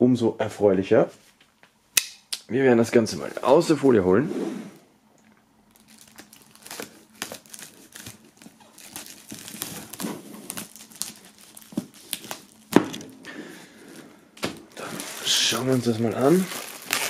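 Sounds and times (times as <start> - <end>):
plastic film crinkling: 5.7 - 17.0.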